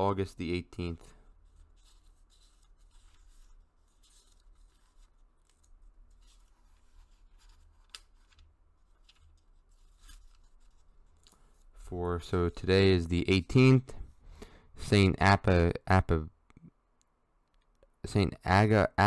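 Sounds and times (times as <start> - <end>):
pages being turned: 1.4 - 11.9.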